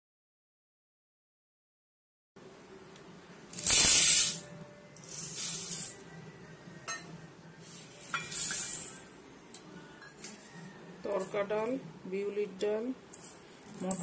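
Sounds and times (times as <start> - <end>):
grains poured into steel bowl: 3.6 - 4.4, 5.0 - 6.0, 8.3 - 9.1.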